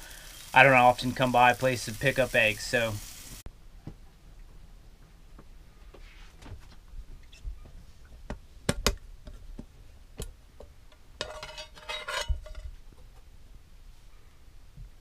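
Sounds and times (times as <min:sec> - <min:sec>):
metal lid scraping and ringing: 0:11.2 - 0:12.6
metal clanks: 0:11.2 - 0:12.8.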